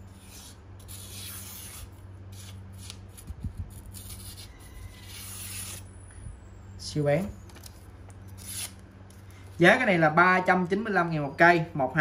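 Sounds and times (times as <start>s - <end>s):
knife slicing through paper: 0.2s - 5.8s.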